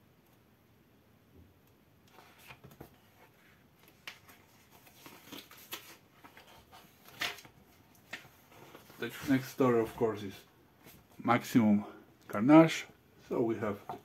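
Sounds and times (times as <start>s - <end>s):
comic book pages flipping: 2.1s - 11.5s.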